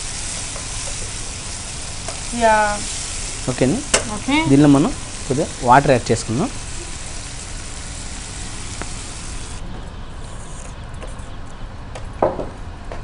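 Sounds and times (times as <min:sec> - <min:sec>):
sauce sizzling in pan: 0:00.0 - 0:09.6.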